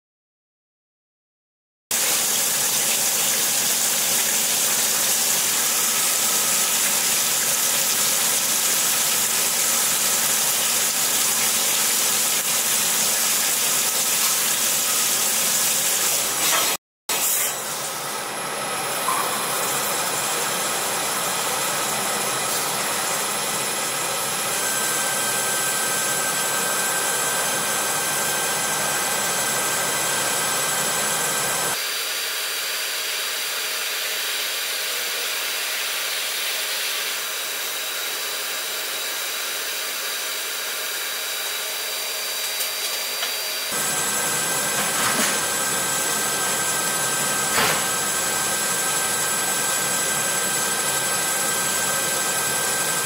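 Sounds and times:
oil coolant jet hissing: 0:02.0 - 0:18.2
lathe running: 0:02.5 - 0:16.4, 0:17.1 - 0:31.8, 0:33.2 - 0:53.0
thin steady whines: 0:17.5 - 0:31.8.

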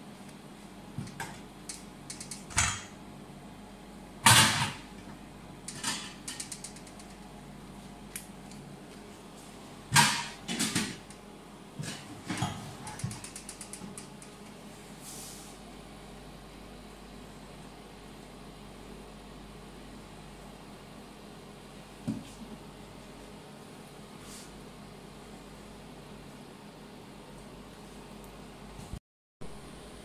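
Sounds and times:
steady low hum: 0:00.0 - 0:30.0
quick clicks: 0:12.9 - 0:14.4.

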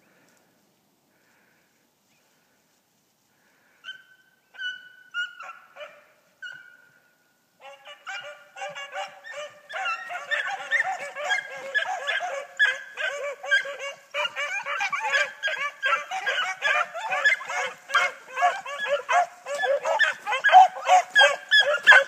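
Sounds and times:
hounds baying: 0:07.6 - 0:22.0.

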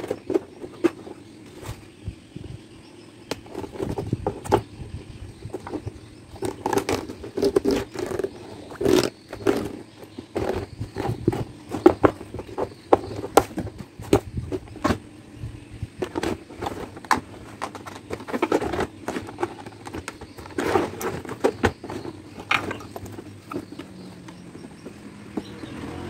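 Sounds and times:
suitcase clicks and knocks: 0:05.4 - 0:15.1, 0:16.0 - 0:25.7
zipper scraping rustles: 0:06.4 - 0:11.5.

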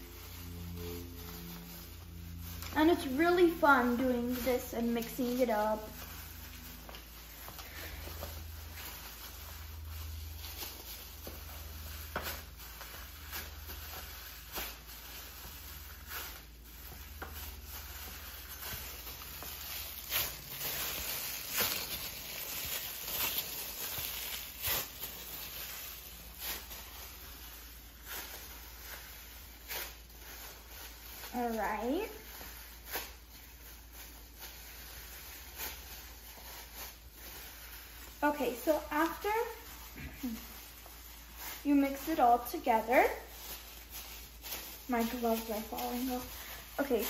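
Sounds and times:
plastic gloves crinkling: 0:00.0 - 0:47.0.

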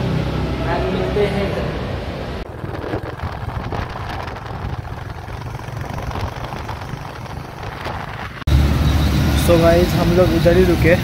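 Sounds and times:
motorcycle engine rumble: 0:00.0 - 0:11.0
wind noise on microphone: 0:02.4 - 0:08.5.

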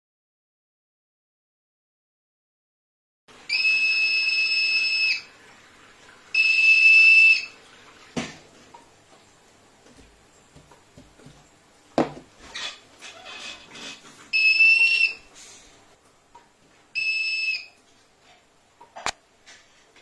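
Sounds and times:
metal detector buzzer beeping: 0:03.5 - 0:05.2, 0:06.4 - 0:07.5, 0:14.4 - 0:15.2, 0:17.0 - 0:17.8
knock on a table: 0:12.0 - 0:12.3.

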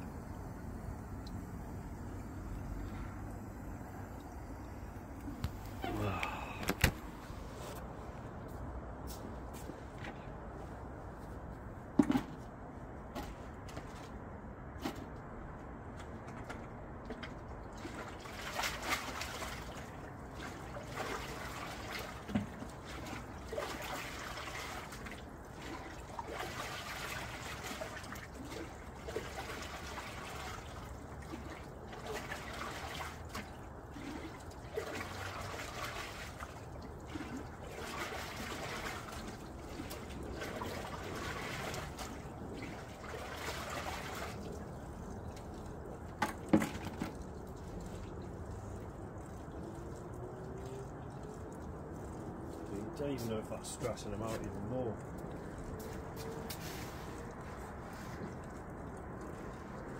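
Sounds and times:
water poured splashing into tank: 0:17.1 - 0:59.9.

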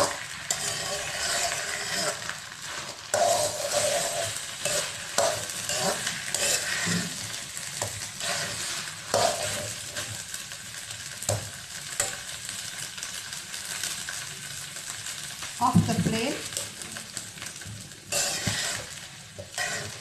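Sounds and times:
spoon scraping a wok: 0:00.0 - 0:10.3, 0:18.1 - 0:20.0
rice sizzling: 0:00.0 - 0:20.0.

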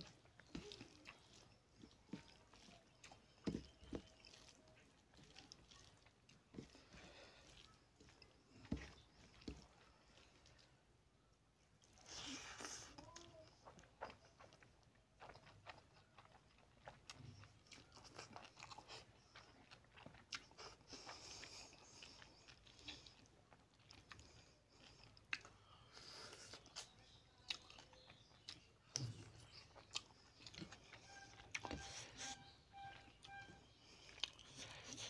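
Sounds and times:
fingers working food: 0:00.0 - 0:10.5, 0:28.4 - 0:35.0
person chewing food: 0:00.0 - 0:35.0.

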